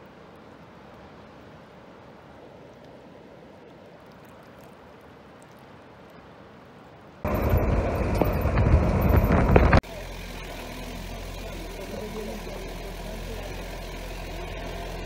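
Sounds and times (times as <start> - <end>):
sea and breeze: 0.0 - 10.2
wind buffeting: 7.2 - 9.8
vehicle road noise: 7.2 - 15.0.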